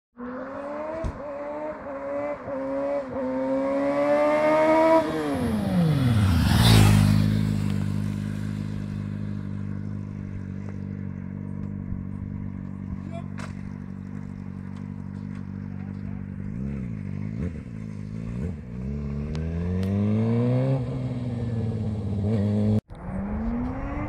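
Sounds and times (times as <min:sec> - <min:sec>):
motorcycle engine revving past: 0:00.2 - 0:24.0
wind noise: 0:22.9 - 0:24.0.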